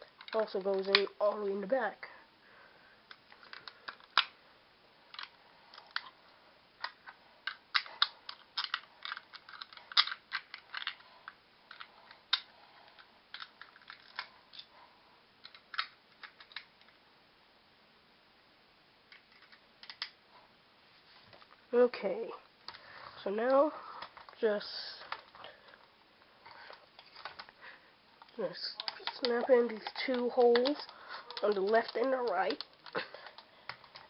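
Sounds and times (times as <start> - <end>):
plastic toy parts clicking: 0.2 - 1.4, 3.1 - 4.3, 5.1 - 6.2, 6.8 - 14.7, 15.4 - 17.0, 19.1 - 20.2, 26.6 - 27.5, 28.2 - 34.0.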